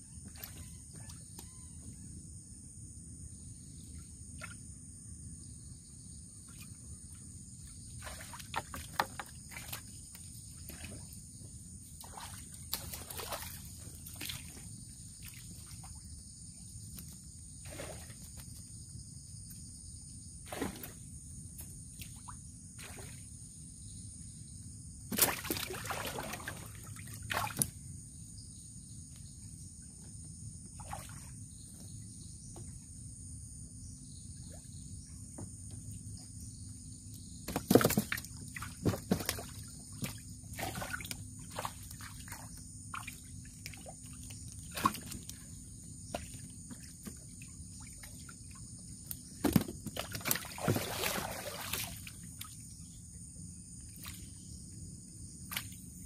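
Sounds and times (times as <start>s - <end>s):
water splashing against canoe: 49.4s - 52.5s.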